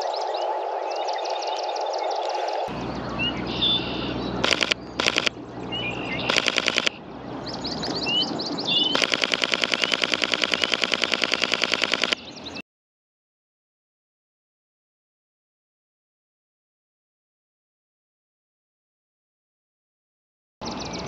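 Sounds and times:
small birds chirping: 0:00.0 - 0:12.6, 0:20.6 - 0:21.0
camera shutter clicking in bursts: 0:04.4 - 0:05.4, 0:06.3 - 0:07.0, 0:09.0 - 0:12.2.

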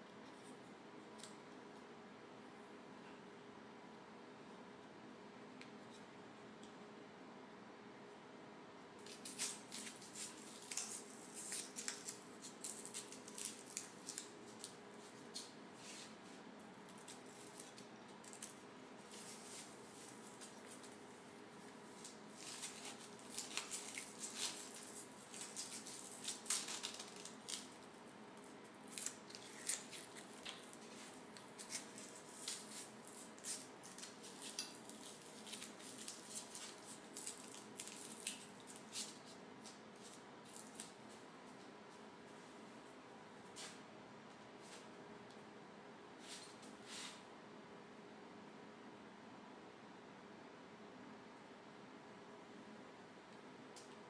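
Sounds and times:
rustling: 0:17.0 - 0:21.0, 0:21.6 - 0:27.8
velcro strap ripping: 0:22.0 - 0:27.7, 0:28.9 - 0:30.6.

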